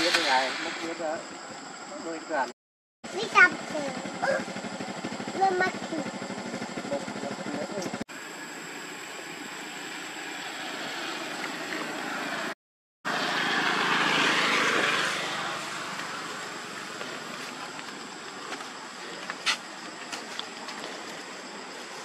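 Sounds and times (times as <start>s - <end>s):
outdoor hiss: 0.0s - 2.5s, 7.6s - 22.0s
motorbike passing: 3.1s - 19.1s.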